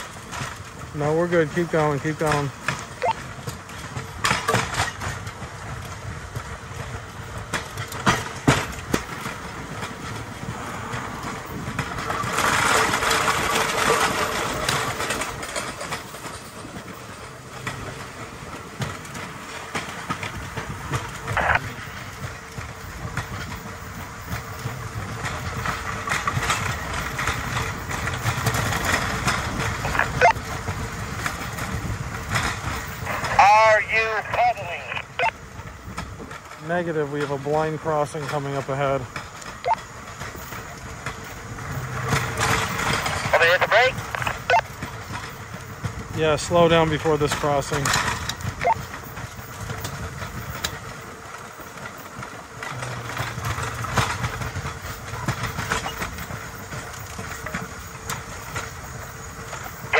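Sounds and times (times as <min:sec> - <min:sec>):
clicks at rail joints: 0:00.0 - 0:33.5, 0:34.2 - 0:59.9
steel wheels rolling on track: 0:00.0 - 0:59.9
wheel squeak: 0:24.3 - 0:30.5, 0:52.6 - 0:59.9.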